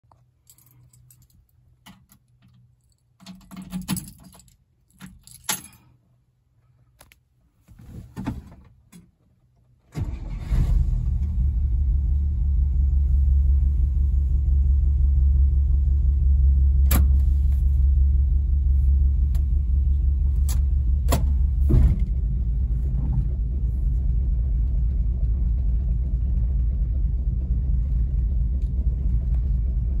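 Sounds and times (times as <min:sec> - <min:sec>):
keys jangling: 0:00.4 - 0:05.9
car engine starting and running: 0:09.9 - 0:30.0.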